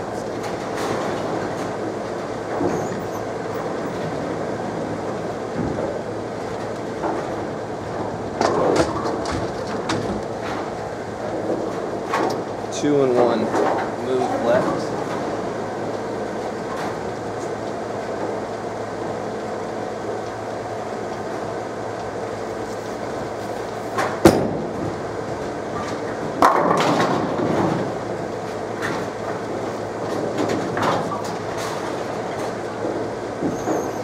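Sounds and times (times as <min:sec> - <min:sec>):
pinsetters running: 0:00.0 - 0:34.0
rumble of rolling balls: 0:00.0 - 0:34.0
ball crashing into pins: 0:26.4 - 0:27.8.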